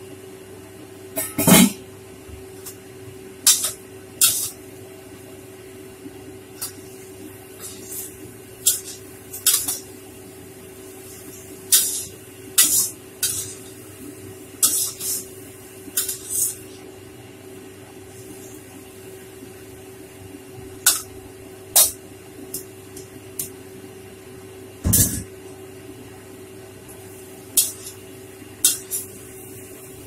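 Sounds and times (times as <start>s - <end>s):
metal spatula scraping a pan: 3.5s - 4.6s, 11.7s - 13.7s, 14.6s - 15.3s, 16.0s - 16.6s, 27.6s - 28.0s, 28.6s - 29.1s
vegetables sizzling in a pan: 3.5s - 4.7s, 6.4s - 17.0s, 26.8s - 30.0s.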